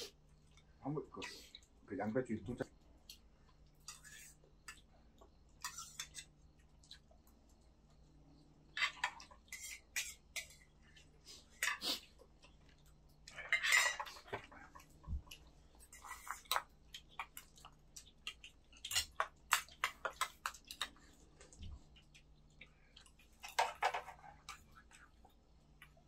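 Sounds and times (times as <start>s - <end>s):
utensils clinking against bowls: 13.3s - 14.5s.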